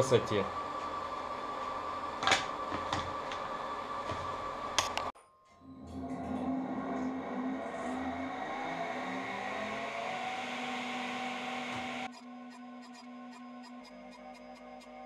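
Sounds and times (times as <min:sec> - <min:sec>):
table saw whirring: 0:05.6 - 0:14.7
music with ticking beat: 0:12.1 - 0:15.0.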